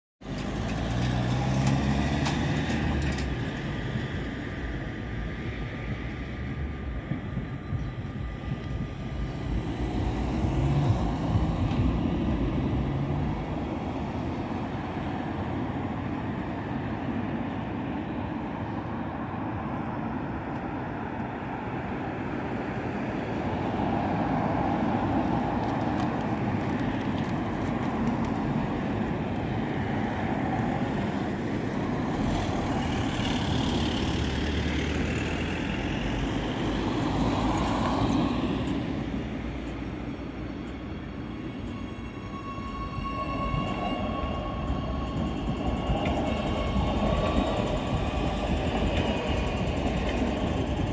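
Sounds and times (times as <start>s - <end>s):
road traffic: 0.2s - 50.9s
train wheels on rails: 0.2s - 50.9s.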